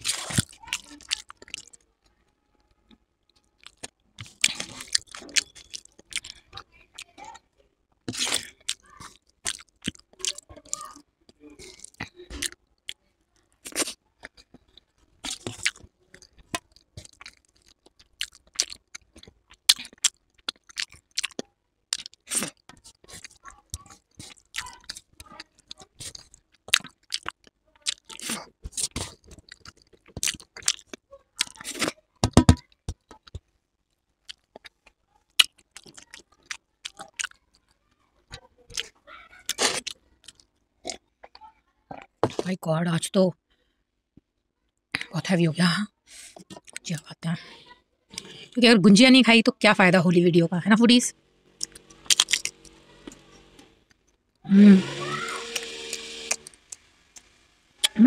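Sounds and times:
chewing and lip smacking: 0.0s - 1.8s, 3.6s - 7.2s, 8.0s - 32.0s, 34.2s - 37.7s, 38.7s - 42.1s, 46.3s - 47.1s, 51.6s - 53.2s.

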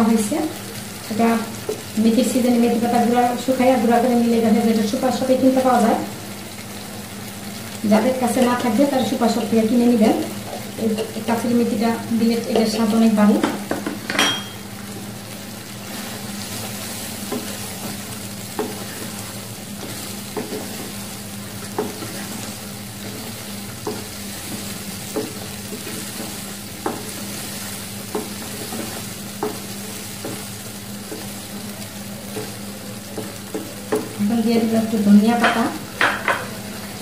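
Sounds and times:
curry sizzling: 0.0s - 37.0s
spatula knocking against pan: 13.4s - 14.6s, 21.7s - 22.2s, 23.8s - 27.2s, 28.1s - 30.5s, 35.4s - 36.5s.

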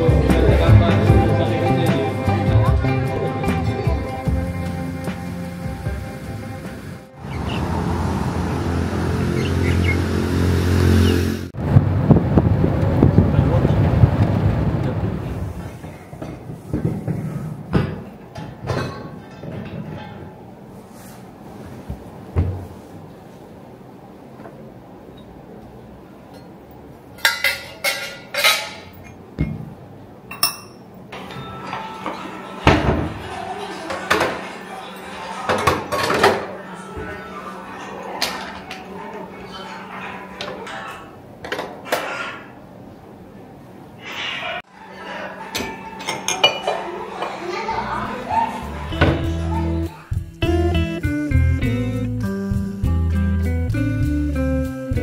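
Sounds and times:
vehicle engine running: 4.3s - 15.4s
bird chirps: 9.3s - 10.1s
kitchenware clinking: 17.7s - 20.4s, 27.2s - 29.6s, 30.3s - 37.0s, 45.0s - 47.7s.

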